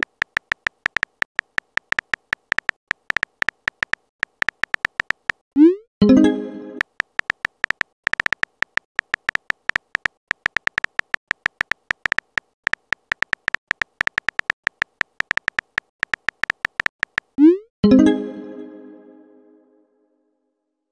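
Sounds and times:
keyboard typing clicks: 0.0 - 5.7, 6.7 - 17.6.

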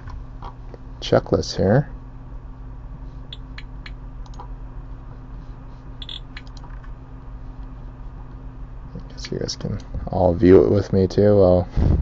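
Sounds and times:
steady low hum: 0.0 - 12.0
touchpad and key clicks: 6.0 - 6.9.

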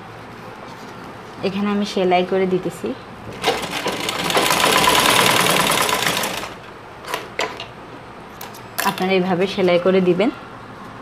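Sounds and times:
sewing machine running: 3.3 - 6.6.

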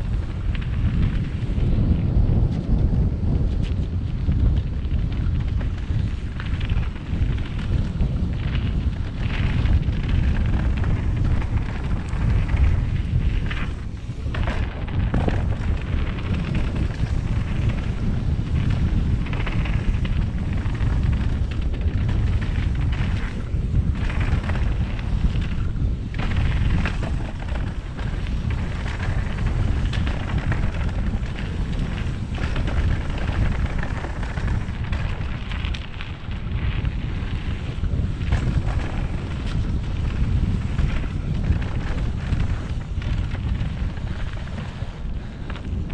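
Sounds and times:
bike knocking and rattling: 0.0 - 45.9
wind buffeting microphone: 0.0 - 45.9
tyres on dirt: 4.3 - 45.9.

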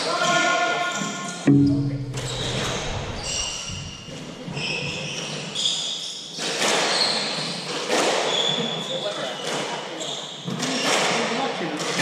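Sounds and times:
ball thuds: 1.5 - 4.4
shoes squeaking on court floor: 4.3 - 7.7, 8.3 - 11.0.

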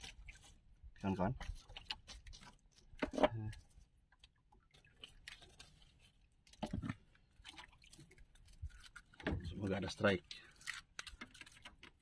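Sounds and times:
fishing tackle clicks and rustles: 1.3 - 12.0.

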